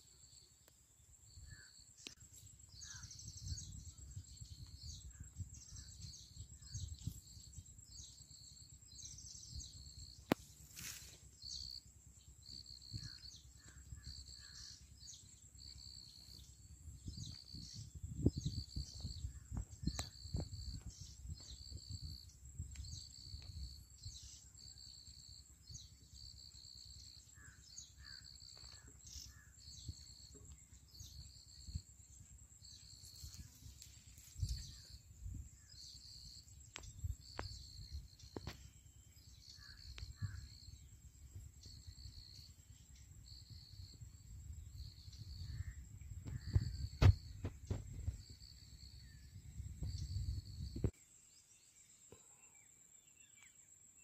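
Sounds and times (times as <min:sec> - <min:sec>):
high-pitched insect whine: 0:00.0 - 0:51.9
wind rumble on microphone: 0:02.7 - 0:08.2, 0:12.4 - 0:24.5, 0:27.4 - 0:51.0.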